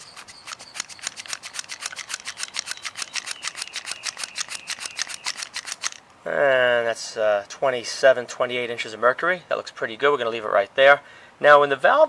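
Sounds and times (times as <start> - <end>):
hand vacuum pump squeezed: 0.0 - 6.0.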